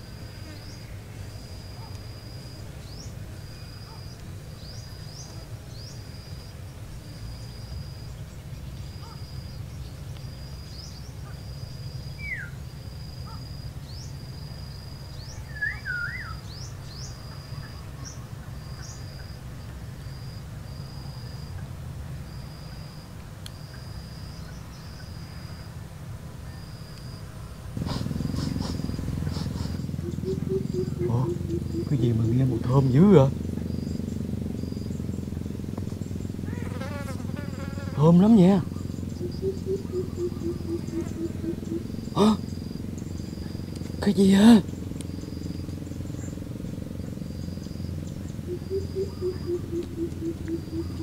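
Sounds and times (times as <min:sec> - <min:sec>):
bird chirps: 0:11.9 - 0:12.6, 0:15.1 - 0:19.3, 0:27.8 - 0:51.0
steady low rumble: 0:27.5 - 0:36.6, 0:38.6 - 0:51.0.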